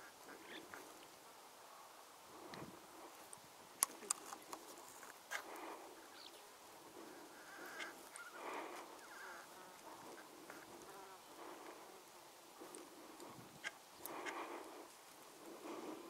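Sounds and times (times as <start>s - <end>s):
faint outdoor background: 0.0s - 16.0s
sharp clicks: 3.8s - 4.7s.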